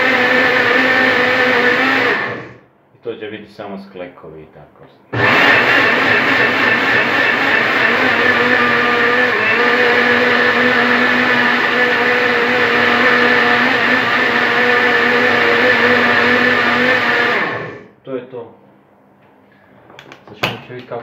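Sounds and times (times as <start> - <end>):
blender motor running: 0.0 - 2.6, 5.1 - 17.9.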